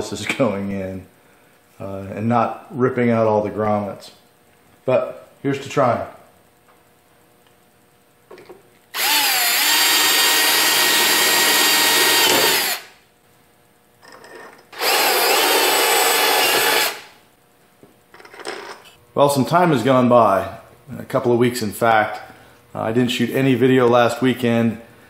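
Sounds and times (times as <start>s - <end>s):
cordless drill motor whine: 8.9s - 13.0s, 14.7s - 17.1s.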